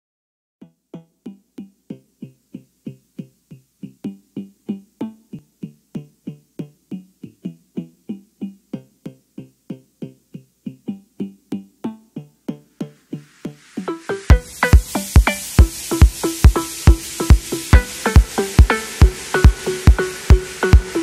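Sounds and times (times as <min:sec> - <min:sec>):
synthesizer plucked notes: 0:10.8 - 0:21.0.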